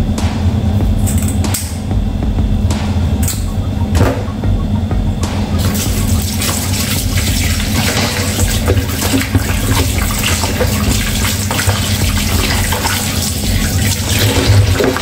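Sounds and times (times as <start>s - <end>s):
tap running into sink: 5.6s - 15.0s
water splashing over fish: 5.6s - 15.0s.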